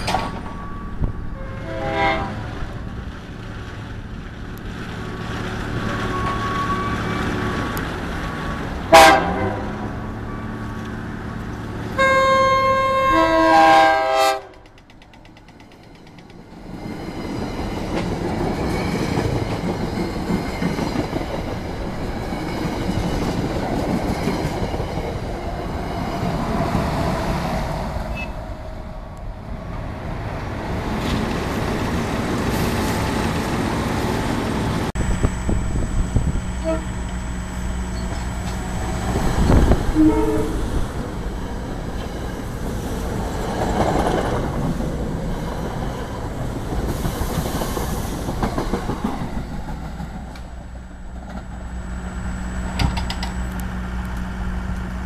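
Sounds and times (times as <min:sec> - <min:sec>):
train wheels rumbling on rails: 0:00.0 - 0:12.1, 0:13.1 - 0:55.0
train horn: 0:00.4 - 0:02.8, 0:05.9 - 0:07.5, 0:08.9 - 0:10.7, 0:11.9 - 0:14.7, 0:35.0 - 0:37.2, 0:39.4 - 0:40.8.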